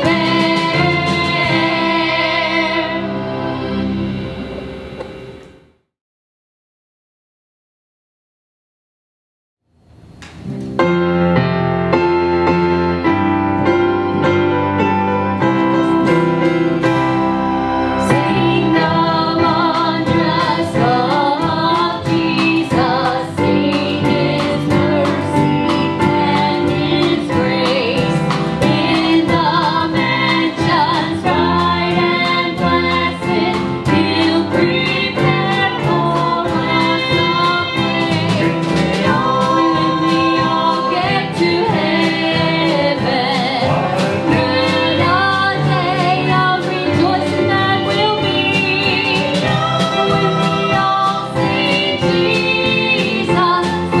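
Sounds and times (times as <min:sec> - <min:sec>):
drum kit beat: 0:00.0 - 0:03.3, 0:14.4 - 0:54.0
people singing: 0:00.0 - 0:03.9, 0:17.8 - 0:54.0
keyboard: 0:00.0 - 0:05.8, 0:10.5 - 0:54.0
guitars: 0:13.6 - 0:54.0.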